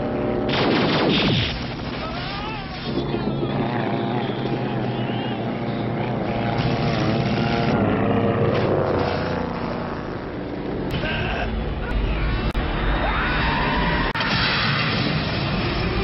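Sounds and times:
gyrocopter engine and propeller drone: 0:00.0 - 0:16.0.

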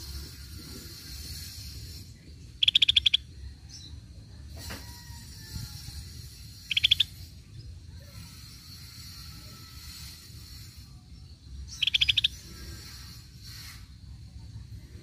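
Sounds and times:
bird rattling trills: 0:00.0 - 0:03.4, 0:04.8 - 0:07.5, 0:08.1 - 0:13.9.

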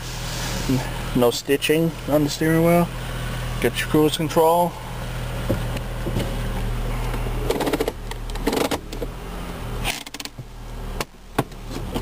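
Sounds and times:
car engine idling: 0:00.0 - 0:12.0
gear shift lever clicks and knocks: 0:07.4 - 0:09.1, 0:09.8 - 0:12.0.

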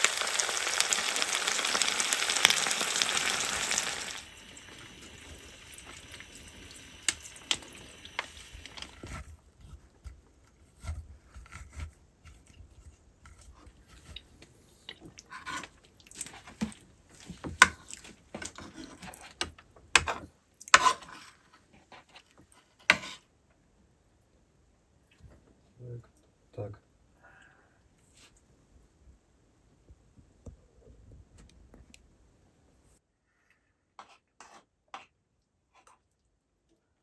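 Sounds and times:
food sizzling in frying pan: 0:00.0 - 0:09.1.

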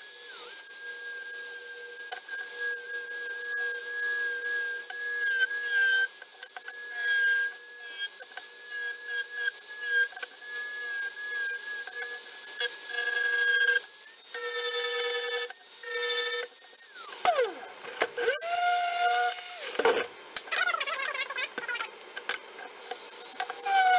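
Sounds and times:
rotary tool sanding whine: 0:00.0 - 0:20.0, 0:22.6 - 0:23.9.

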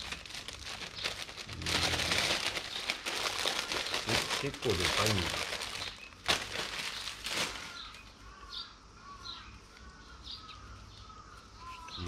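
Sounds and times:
glass wool crinkling: 0:00.0 - 0:08.1
small bird chirping: 0:02.6 - 0:06.2, 0:06.8 - 0:12.0.

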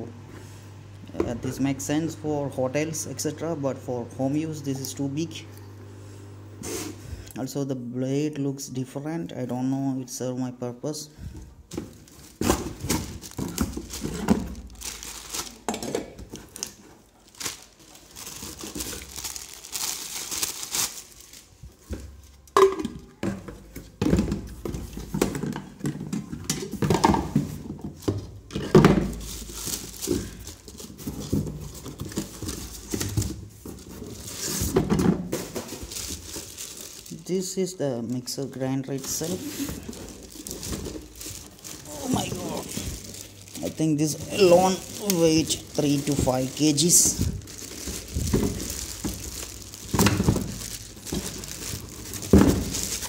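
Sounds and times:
cardboard and plastic rustling: 0:11.2 - 0:37.8, 0:38.5 - 0:53.0.

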